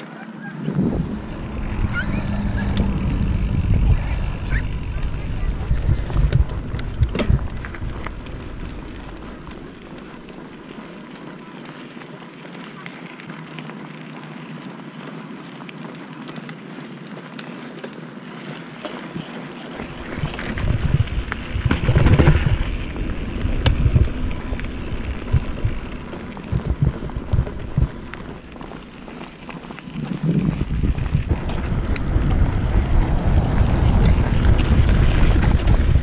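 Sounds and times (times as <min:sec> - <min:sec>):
bike tyre noise: 0:00.4 - 0:36.0
wind buffeting microphone: 0:00.5 - 0:11.2, 0:19.7 - 0:36.0
small clicks: 0:01.2 - 0:18.0.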